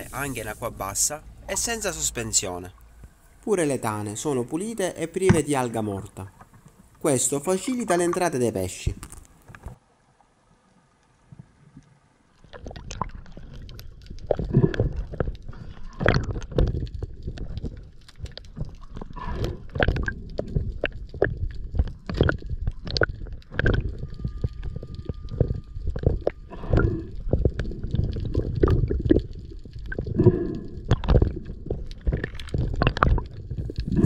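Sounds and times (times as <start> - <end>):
underwater water gurgling: 11.4 - 34.0.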